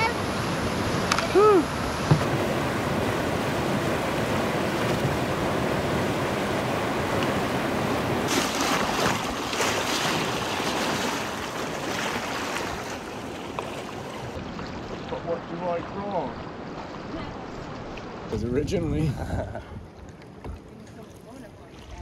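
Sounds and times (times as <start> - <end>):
whitewater rushing in river rapid: 0.0 - 16.4.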